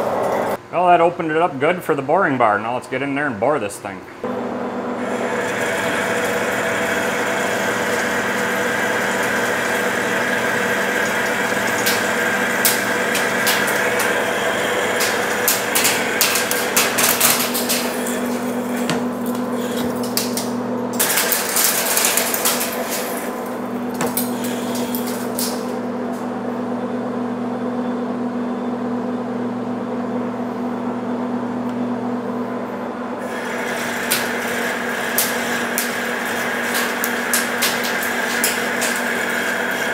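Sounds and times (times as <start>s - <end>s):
metal lathe gear hum: 4.2s - 25.9s, 33.2s - 39.9s
boring bar cutting steel: 5.0s - 25.8s, 33.2s - 39.9s
metal chips crackling and rattling: 11.6s - 25.8s, 33.6s - 39.9s.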